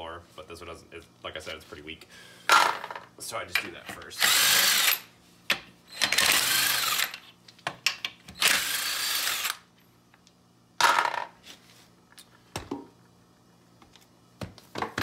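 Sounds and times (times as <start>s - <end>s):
impact wrench spinning: 4.2s - 5.1s, 5.9s - 7.3s, 8.4s - 9.7s.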